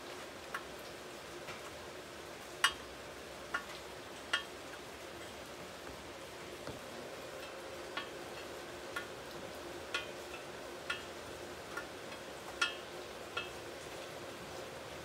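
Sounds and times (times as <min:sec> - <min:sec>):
light metallic ticks with ring: 0:04.3 - 0:04.5, 0:07.4 - 0:09.1, 0:09.9 - 0:13.6.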